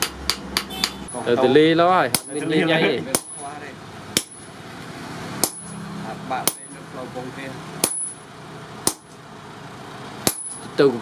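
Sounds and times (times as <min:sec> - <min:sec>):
hammer striking metal on anvil: 0:00.0 - 0:01.2, 0:02.1 - 0:02.4, 0:03.1 - 0:03.5, 0:04.1 - 0:04.5, 0:05.4 - 0:05.8, 0:06.4 - 0:06.8, 0:07.8 - 0:08.2, 0:08.8 - 0:09.2, 0:10.2 - 0:10.7.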